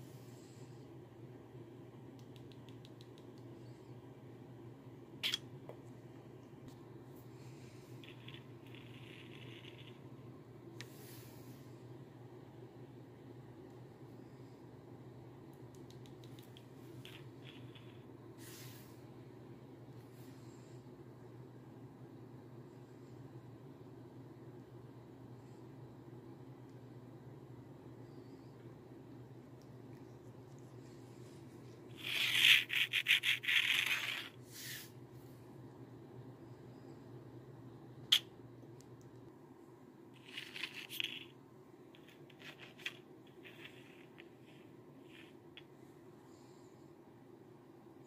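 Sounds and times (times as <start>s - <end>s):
light hiss: 15.8s - 19.1s, 30.3s - 35.0s.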